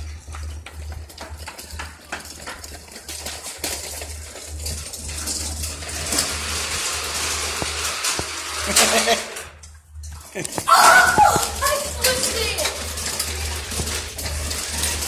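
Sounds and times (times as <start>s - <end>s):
sharp clicks and scuffs: 10.4s - 12.3s.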